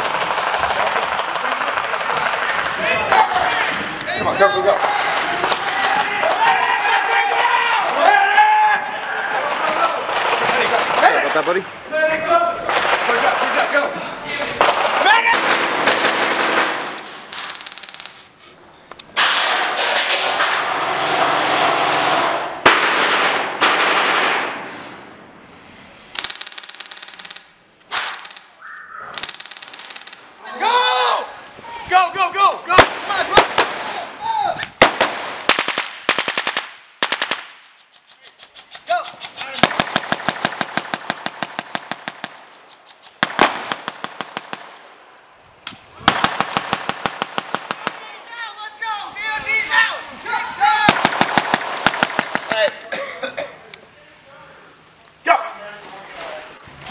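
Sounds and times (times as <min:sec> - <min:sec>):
sharp crack: 0:00.0 - 0:11.7, 0:12.6 - 0:13.8, 0:14.4 - 0:25.3, 0:26.1 - 0:30.5, 0:32.7 - 0:48.5, 0:50.3 - 0:53.0
airsoft guns firing bursts: 0:14.6 - 0:18.2, 0:21.8 - 0:24.6, 0:26.2 - 0:28.6, 0:29.2 - 0:30.3, 0:34.7 - 0:44.8, 0:46.1 - 0:48.1, 0:50.7 - 0:52.6.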